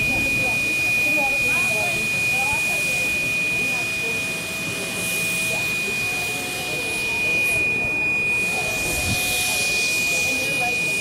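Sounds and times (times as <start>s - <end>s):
steady high-pitched whine: 0.0s - 11.0s
steam locomotive hissing: 0.0s - 11.0s.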